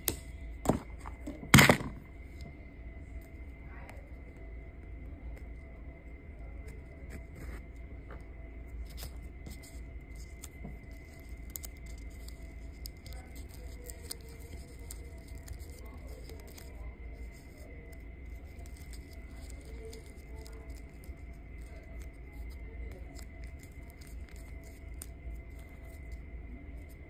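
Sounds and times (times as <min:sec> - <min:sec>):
low room hum: 0:00.0 - 0:27.0.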